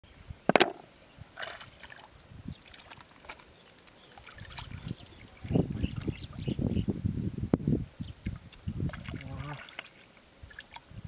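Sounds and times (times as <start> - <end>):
mud squelching and water sloshing: 1.4 - 6.4, 8.2 - 11.0
small clicks and drips: 1.8 - 5.2, 8.2 - 11.0.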